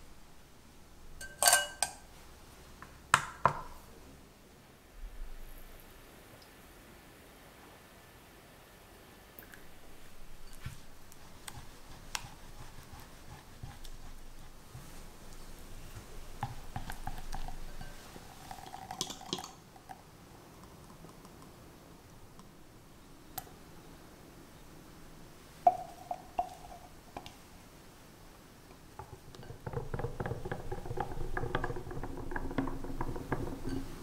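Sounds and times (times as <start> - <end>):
clinks ringing off glass: 1.2 - 2.0.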